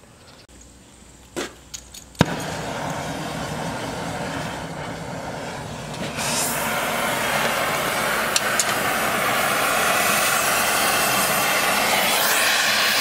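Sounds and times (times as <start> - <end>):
torch igniting pop: 2.2 - 9.1
torch flame hissing: 2.2 - 13.0
igniter clicks: 5.8 - 9.6.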